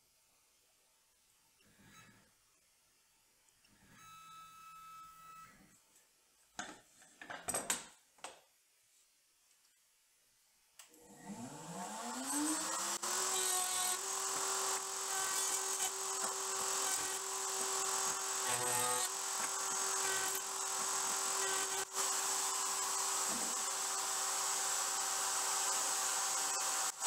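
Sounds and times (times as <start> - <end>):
motorized fence whining: 11.1 - 27.0
router motor whining: 11.1 - 27.0.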